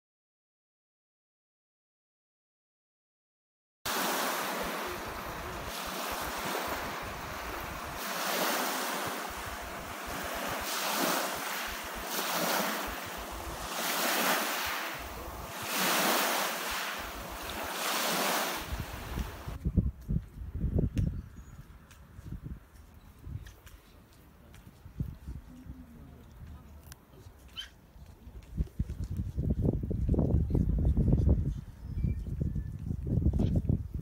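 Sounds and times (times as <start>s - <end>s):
small waves on lake water: 3.9s - 19.6s
wind blowing on microphone: 3.9s - 23.7s, 24.6s - 26.7s, 28.3s - 34.0s.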